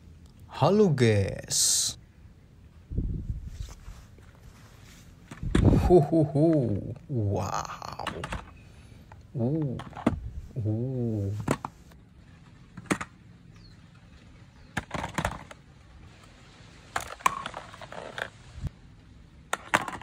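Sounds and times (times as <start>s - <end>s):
wavering voice: 5.7s - 8.4s, 9.3s - 11.6s
plastic toys clattering: 7.9s - 8.6s, 9.5s - 10.2s, 11.4s - 13.3s, 14.7s - 15.7s, 16.8s - 18.5s, 19.4s - 20.0s.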